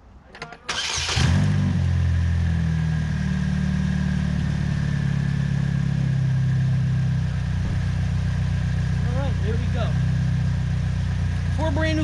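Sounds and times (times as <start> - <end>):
car engine idling: 0.7 - 12.0.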